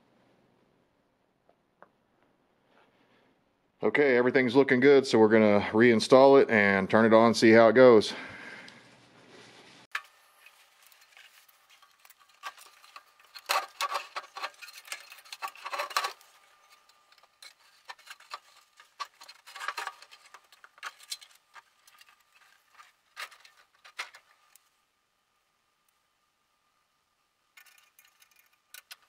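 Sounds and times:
metal clinks and scrapes: 9.9s - 24.6s, 27.6s - 29.0s.

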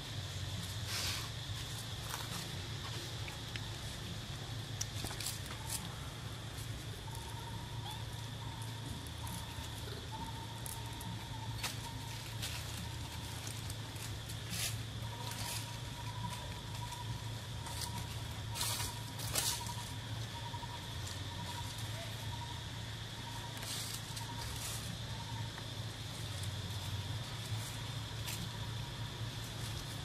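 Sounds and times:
low steady hum: 0.0s - 30.0s
rustles and crackles in dry leaves: 0.0s - 30.0s.

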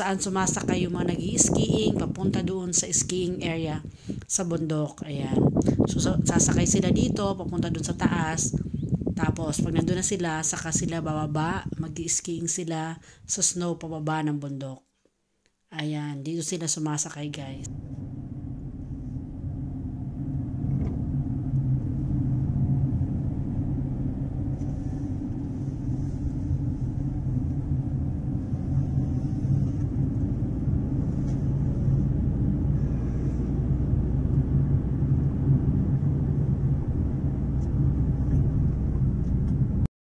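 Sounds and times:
car cabin road and engine rumble: 17.6s - 39.9s.

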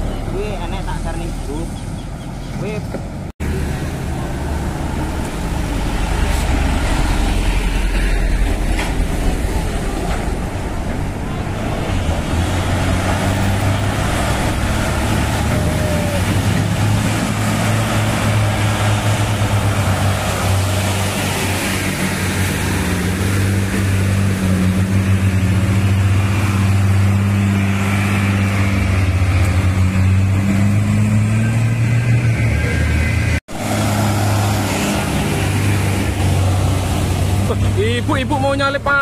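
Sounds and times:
diesel truck engines droning: 0.0s - 39.0s.

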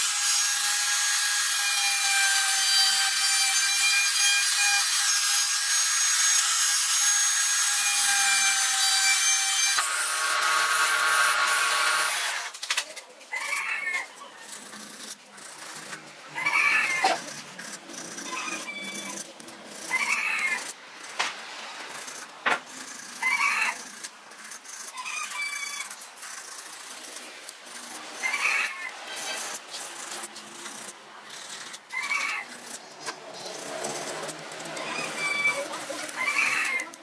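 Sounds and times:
wooden stick squeaking in wood: 13.3s - 20.8s, 22.0s - 37.0s.

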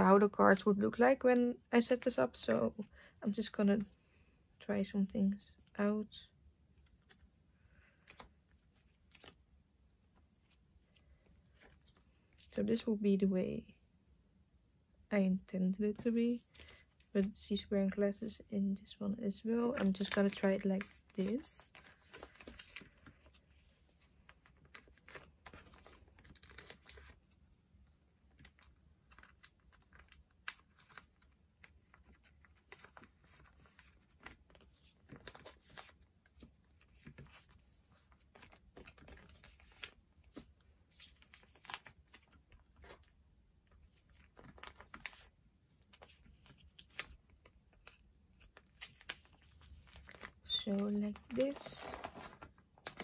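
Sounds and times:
plastic sleeves crinkling and clicking: 7.9s - 12.6s, 19.7s - 53.0s.

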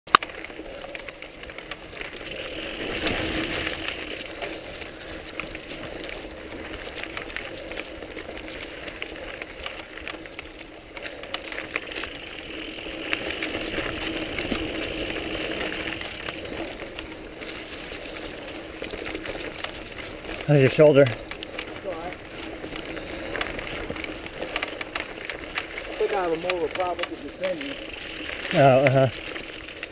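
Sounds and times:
bike rattling and clicking: 0.1s - 29.9s
bike tyres over leaves and dirt: 0.1s - 29.9s.

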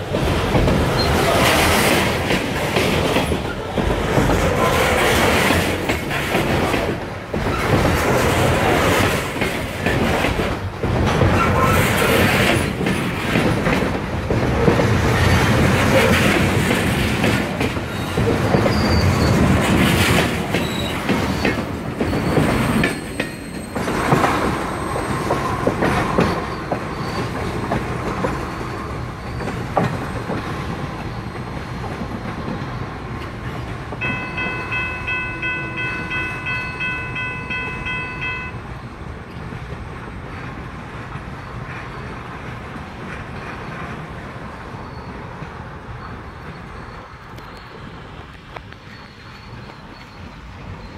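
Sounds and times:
freight train wheels clacking: 0.0s - 50.9s
distant steady high tone: 34.0s - 38.8s.

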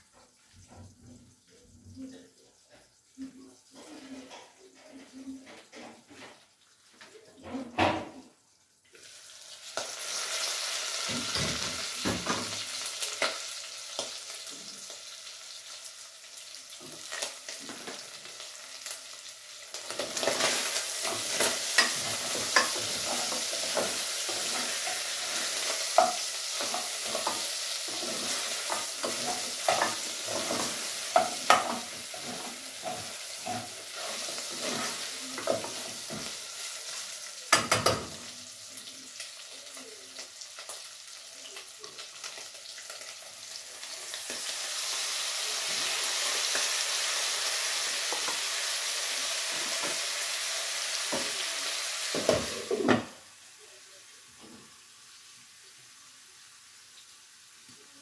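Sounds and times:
meat sizzling in a pot: 7.8s - 58.0s
metal spoon scraping a pot: 20.2s - 35.8s.

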